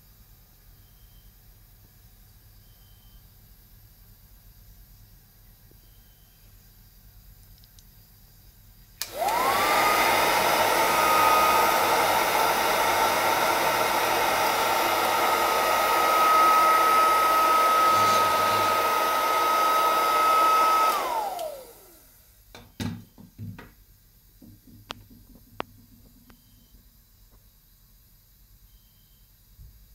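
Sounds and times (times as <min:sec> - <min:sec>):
hair dryer switch click: 0:09.0 - 0:21.9
hair dryer motor whine: 0:09.0 - 0:22.2.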